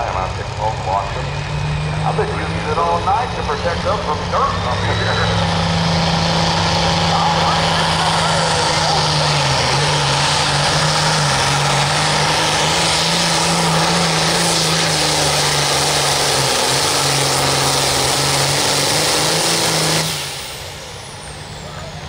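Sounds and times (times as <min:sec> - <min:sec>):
tractor engine at full throttle: 0:00.0 - 0:22.0.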